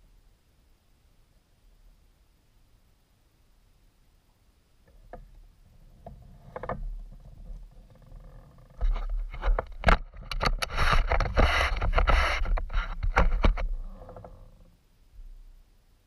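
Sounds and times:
rubbing and scraping on camera: 5.7 - 14.7.

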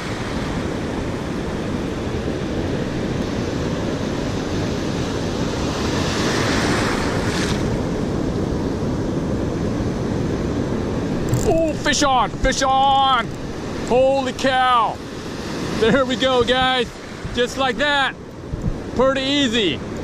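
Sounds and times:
wind buffeting microphone: 0.0 - 19.1
ocean surf washing in: 0.0 - 20.0.

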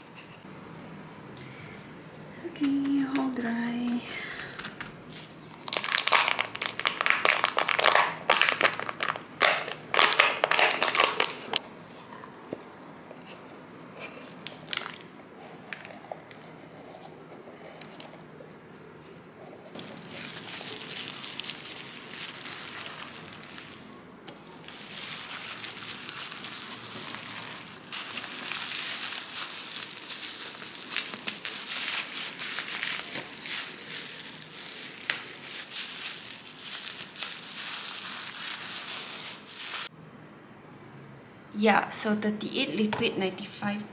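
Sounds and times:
bubble wrap crinkling: 2.5 - 11.6, 14.3 - 15.1, 17.6 - 18.3, 19.0 - 39.9
sheets crunching and snapping: 2.6 - 11.6, 19.7 - 39.9
chips crumbling in plastic cup: 4.4 - 11.6, 14.5 - 15.1, 19.8 - 39.9.

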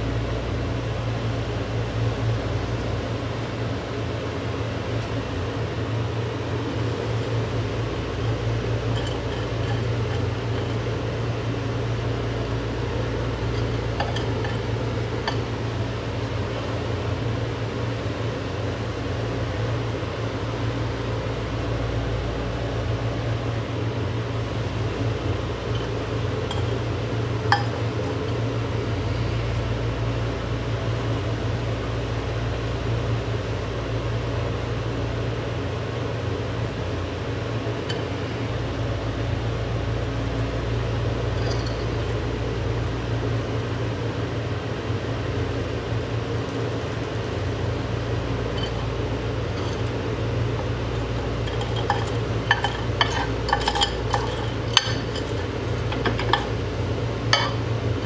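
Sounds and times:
microwave oven humming: 0.0 - 58.0.

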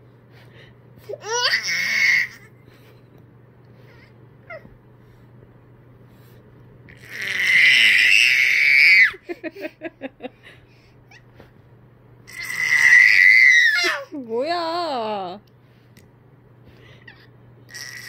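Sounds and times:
baby squealing: 1.2 - 2.5, 7.0 - 9.2, 12.3 - 14.1, 17.1 - 18.0.

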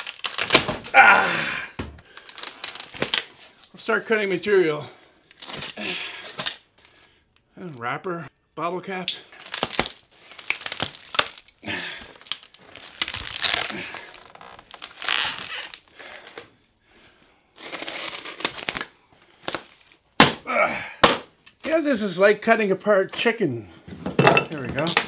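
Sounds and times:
cloth cover ripping: 0.0 - 1.2, 2.2 - 3.4, 9.4 - 16.4, 17.6 - 20.4.

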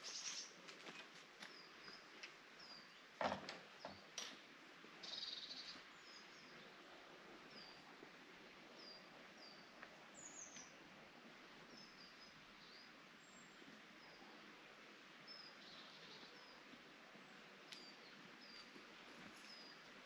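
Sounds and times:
birds chirping: 0.0 - 0.6, 5.0 - 6.8, 17.8 - 20.0
outdoor ambience hiss: 0.0 - 20.0.

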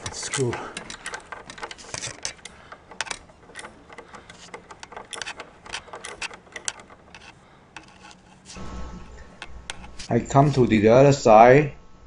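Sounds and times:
socket wrench clicking: 0.0 - 8.3.

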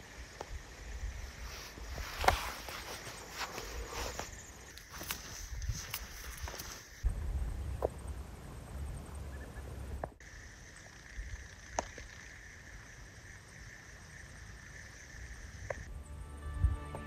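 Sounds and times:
wind rumble on microphone: 5.1 - 10.1.

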